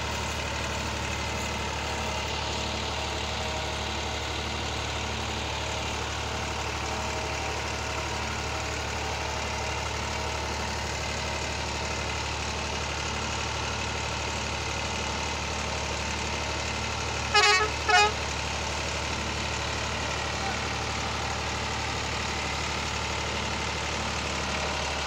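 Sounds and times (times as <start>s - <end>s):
tractor diesel engine running: 0.0s - 25.0s
horn toots: 17.3s - 18.2s.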